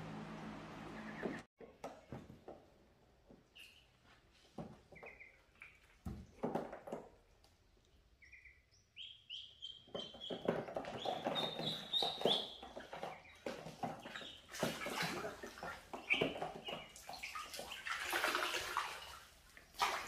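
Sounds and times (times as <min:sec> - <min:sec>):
ducklings peeping: 0:00.9 - 0:01.5, 0:04.9 - 0:06.0, 0:08.2 - 0:18.2
water splashing: 0:11.4 - 0:20.0.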